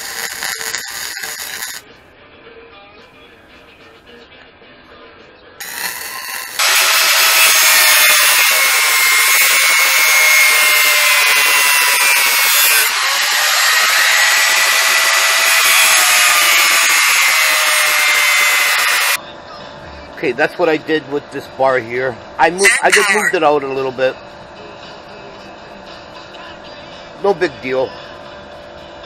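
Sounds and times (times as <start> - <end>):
angle grinder grinding metal: 0.0 - 1.8, 5.6 - 19.2, 22.4 - 23.6.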